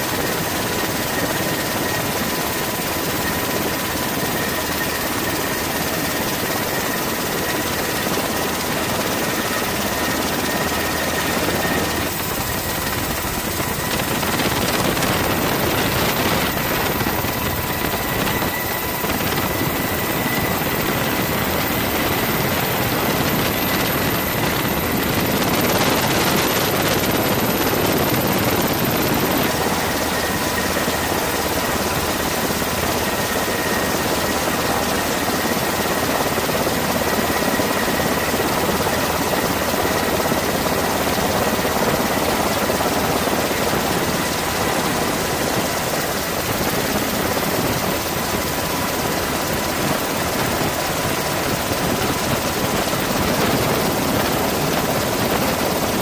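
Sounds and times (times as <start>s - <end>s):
aircraft engine rush: 0.0s - 56.0s
faint high whine: 9.1s - 35.7s.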